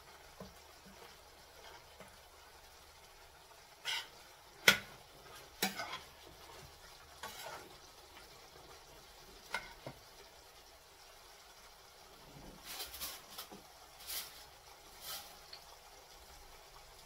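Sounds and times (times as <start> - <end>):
faint sizzle of frying: 0.0 - 17.0
spoon scraping a steel pan: 3.8 - 4.9, 5.6 - 6.1, 7.2 - 7.7.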